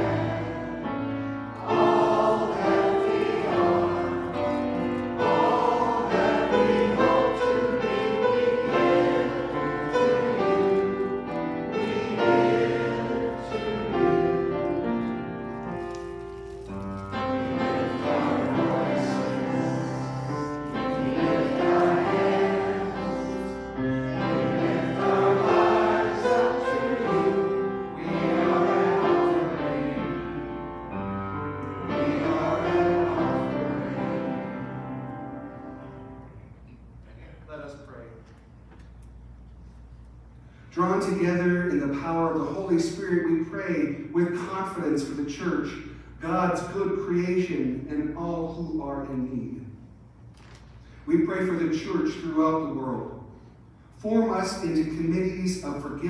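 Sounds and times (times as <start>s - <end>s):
congregation singing a hymn: 0.0s - 36.4s
keyboard accompaniment: 0.0s - 36.7s.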